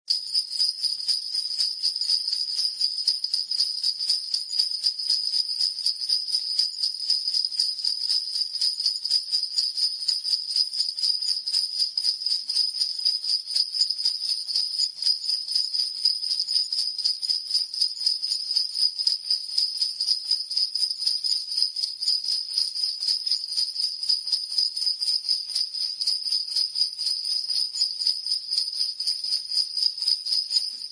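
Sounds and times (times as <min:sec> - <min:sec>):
sleigh bells jingling: 0:30.4 - 0:30.9.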